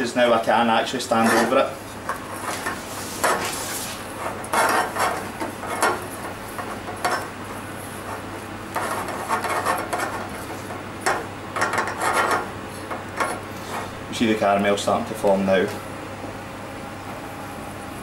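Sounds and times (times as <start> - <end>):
spatula scraping sugar in saucepan: 1.1 - 7.3, 8.0 - 10.8, 11.6 - 14.0.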